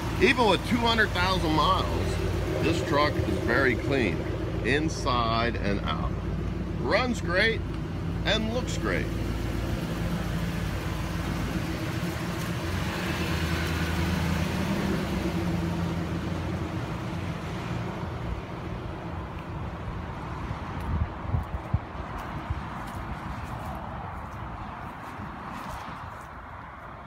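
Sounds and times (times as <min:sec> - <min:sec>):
pickup truck engine idling: 0:00.0 - 0:19.1.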